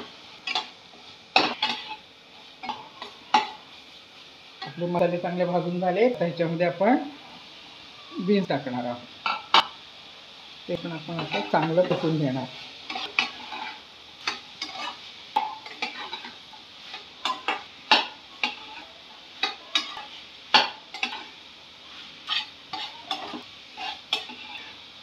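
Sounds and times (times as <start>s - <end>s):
spatula scraping a pan: 0.0s - 4.9s, 11.0s - 24.9s
faint sizzle: 0.0s - 25.0s.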